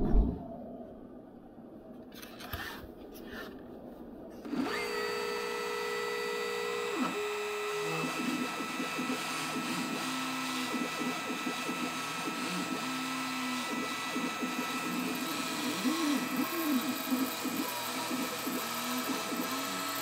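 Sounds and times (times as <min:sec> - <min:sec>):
router whining: 0:04.4 - 0:20.0
stepper motors humming: 0:04.4 - 0:20.0.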